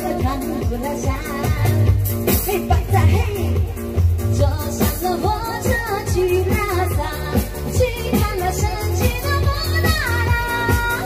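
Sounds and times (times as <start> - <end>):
backing track with steady beat: 0.0 - 11.0
woman singing into microphone: 0.0 - 11.0.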